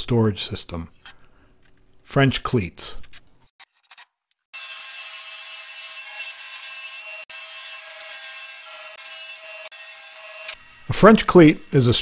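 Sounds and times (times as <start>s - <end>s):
table saw cutting plywood: 4.5s - 12.0s.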